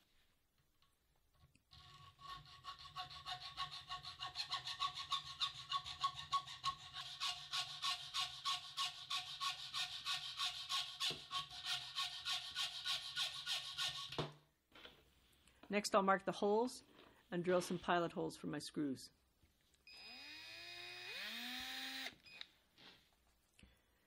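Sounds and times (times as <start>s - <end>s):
hacksaw cutting metal: 1.7s - 14.2s.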